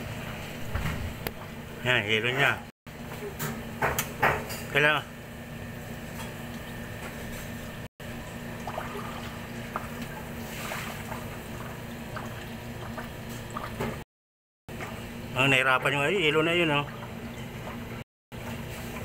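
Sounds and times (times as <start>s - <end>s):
ice maker humming: 0.0s - 14.0s, 14.7s - 19.0s
water trickling: 8.3s - 14.0s.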